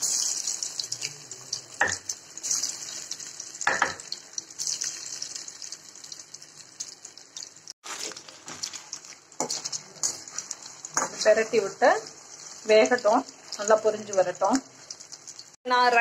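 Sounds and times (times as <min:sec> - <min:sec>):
oil crackles: 0:00.0 - 0:15.6
chicken deep-frying in oil: 0:00.0 - 0:16.0.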